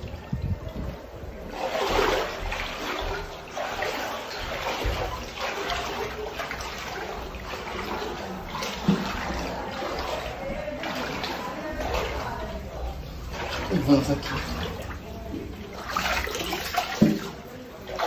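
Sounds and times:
person wading through water: 0.0 - 18.0.

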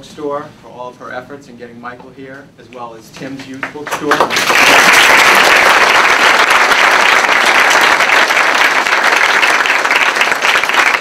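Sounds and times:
audience applauding: 3.7 - 11.0.

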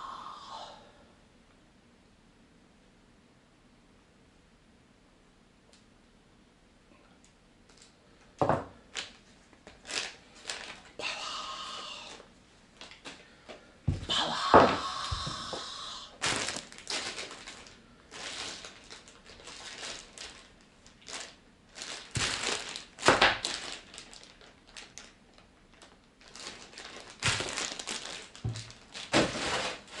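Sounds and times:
plastic bags crinkling: 8.9 - 11.0, 12.1 - 13.3, 16.2 - 30.0.

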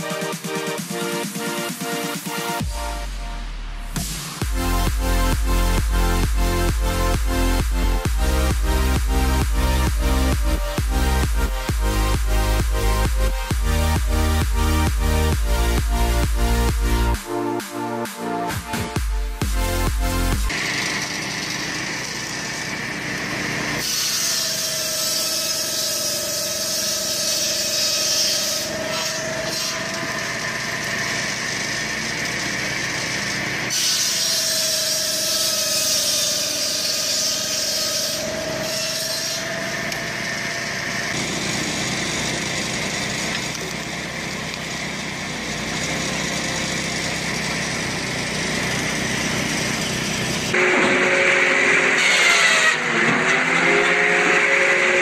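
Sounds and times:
circular saw cutting logs: 0.0 - 55.0
loud abrupt sound: 50.5 - 55.0.

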